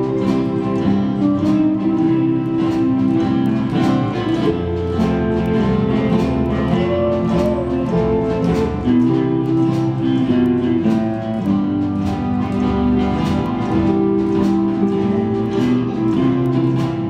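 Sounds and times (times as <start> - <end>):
bass line: 0.0 - 17.0
lap steel guitar: 0.0 - 17.0
strummed acoustic guitars: 0.0 - 17.0.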